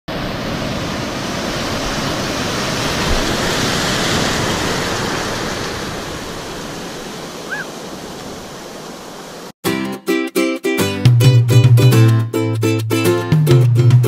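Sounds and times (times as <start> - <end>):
breaking waves: 0.1 - 9.6.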